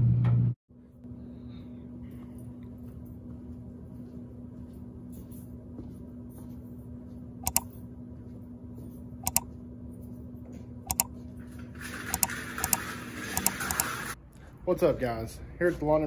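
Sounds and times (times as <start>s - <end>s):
low electrical hum: 0.0s - 16.0s
sharp paired clicks: 7.4s - 7.7s.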